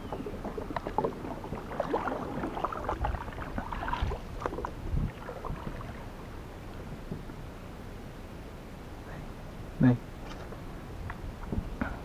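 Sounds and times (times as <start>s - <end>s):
paddle splashing water: 0.0s - 7.0s.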